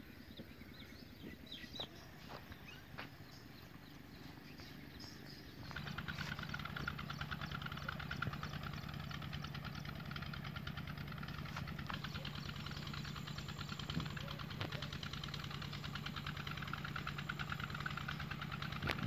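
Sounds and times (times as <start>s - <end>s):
faint bird chirps: 0.0s - 10.4s, 11.2s - 19.0s
engine running with rapid beat: 0.2s - 19.0s.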